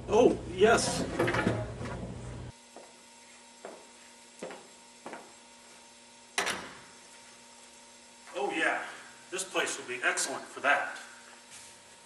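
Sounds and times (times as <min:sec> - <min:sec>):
soft footsteps: 0:02.7 - 0:05.8.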